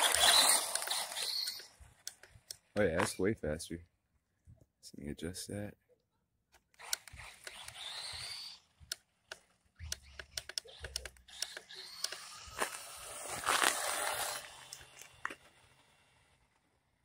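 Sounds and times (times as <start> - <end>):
electric motor whining: 0.0 - 1.8, 6.8 - 8.9, 9.8 - 16.2.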